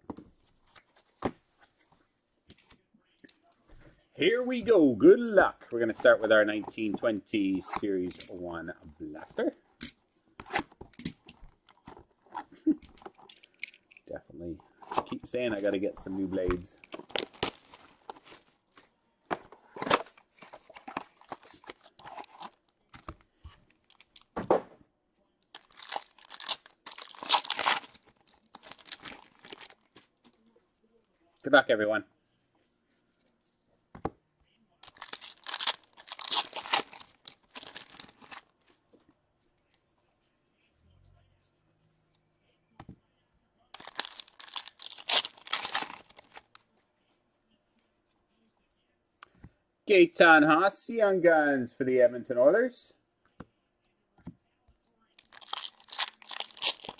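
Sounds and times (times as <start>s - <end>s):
foil wrappers tearing and crinkling: 16.9s - 18.4s, 25.5s - 29.8s, 34.8s - 38.5s, 43.8s - 46.6s, 55.2s - 56.9s.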